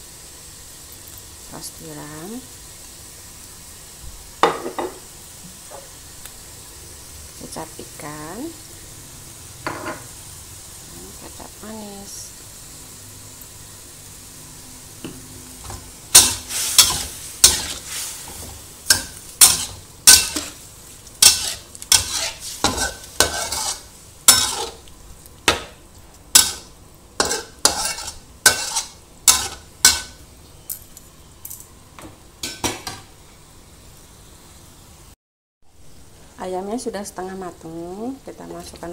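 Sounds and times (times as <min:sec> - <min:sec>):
soft sizzle: 0:00.0 - 0:38.9
metal spatula scraping a wok: 0:16.1 - 0:24.9, 0:26.3 - 0:30.2.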